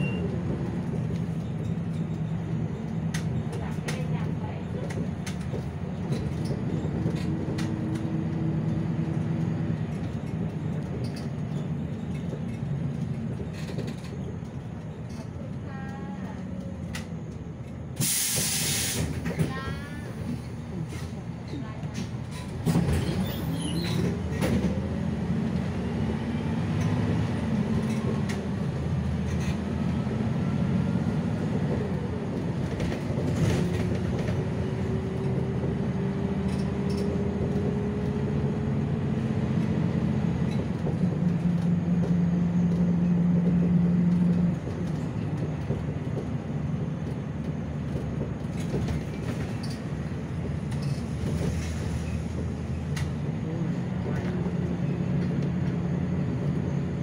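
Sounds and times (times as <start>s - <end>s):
bus engine whining: 0.0s - 57.0s.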